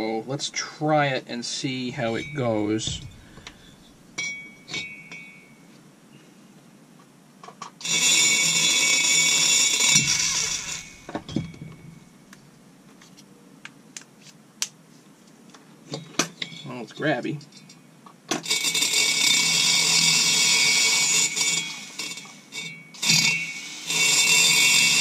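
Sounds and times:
rotary grinding tool whining: 1.9 - 5.2, 7.8 - 12.1, 18.4 - 25.0.

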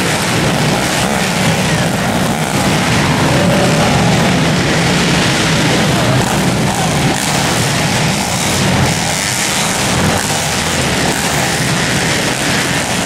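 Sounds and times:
pit bike engines racing: 0.0 - 13.0.

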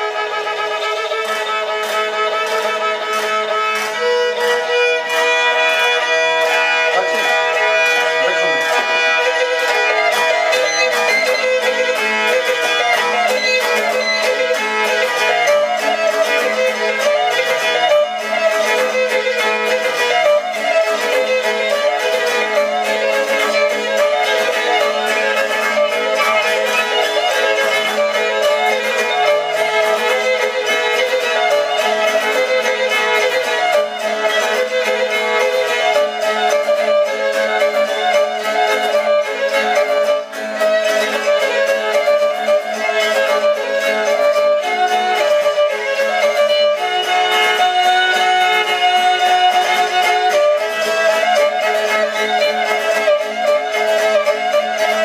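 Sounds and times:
bowed lyra folk melody: 0.0 - 55.0
bells on bow jingling: 0.2 - 40.1.

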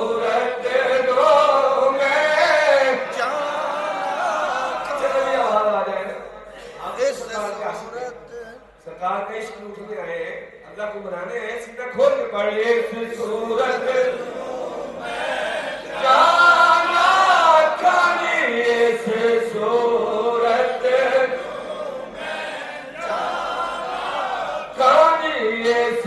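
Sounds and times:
man chanting: 7.1 - 14.2, 24.7 - 26.0.

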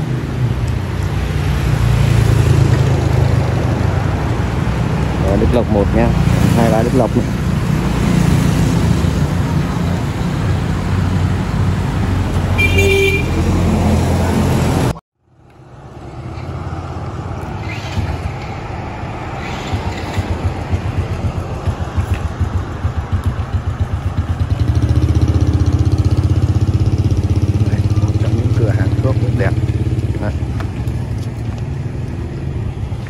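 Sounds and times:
motorbike engines running: 0.0 - 15.0, 16.3 - 33.0
street traffic: 0.0 - 33.0
vehicle horn toot: 12.6 - 13.5.

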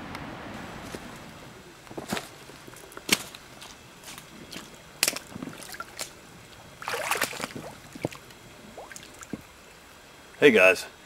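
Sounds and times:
water splashing as someone wades: 3.1 - 9.6.

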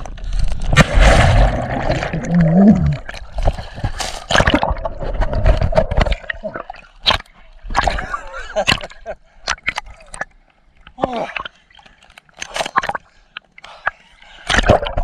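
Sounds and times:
water splashing: 0.3 - 8.8.

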